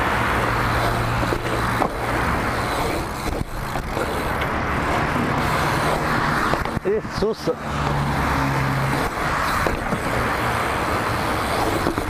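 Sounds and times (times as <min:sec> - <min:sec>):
bike tyres rolling on asphalt: 0:00.0 - 0:12.0
bike knocks: 0:01.2 - 0:02.1, 0:06.4 - 0:07.0, 0:09.5 - 0:10.1.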